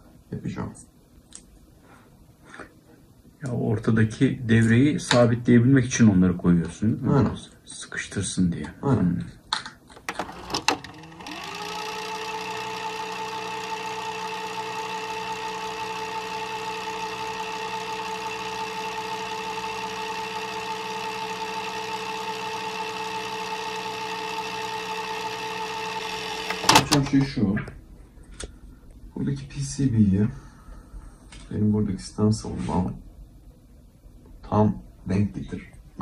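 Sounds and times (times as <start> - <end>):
fast-forward whir: 10.1 - 27.1.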